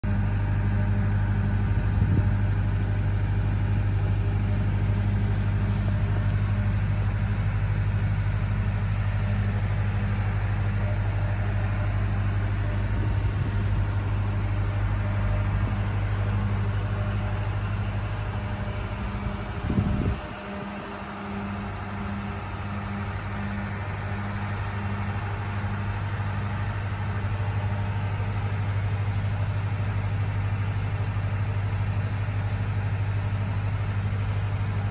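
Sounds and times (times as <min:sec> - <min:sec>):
engine humming at idle: 0:00.0 - 0:34.9.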